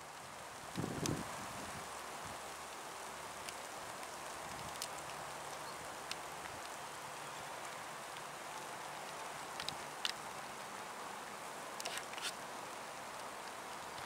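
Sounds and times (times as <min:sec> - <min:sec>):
outdoor hiss: 0:00.0 - 0:14.0
light ticks: 0:00.6 - 0:01.2, 0:02.4 - 0:06.8, 0:07.6 - 0:10.5, 0:13.1 - 0:14.0.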